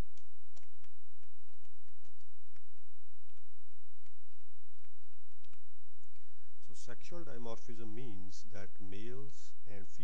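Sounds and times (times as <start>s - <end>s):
keyboard typing clicks: 0.0s - 6.3s
steady low hum: 0.0s - 10.0s.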